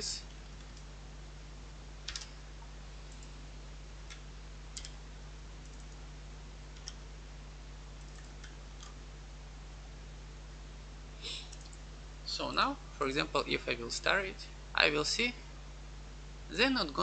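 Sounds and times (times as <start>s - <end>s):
steady low hum: 0.0s - 17.0s
keyboard and mouse clicks: 2.0s - 2.4s, 4.8s - 5.0s, 6.8s - 7.0s, 11.5s - 11.8s.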